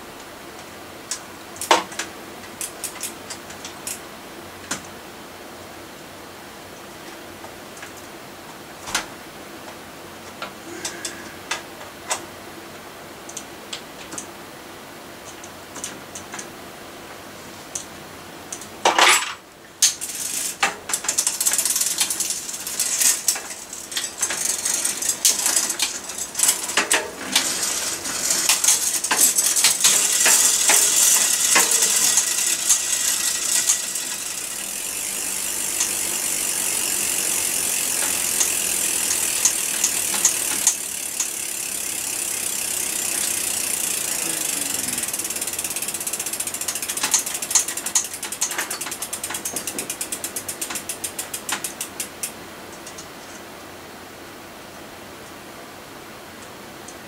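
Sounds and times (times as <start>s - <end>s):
chain running over sprockets: 18.8s - 53.0s
bike drivetrain clicks: 19.8s - 53.1s.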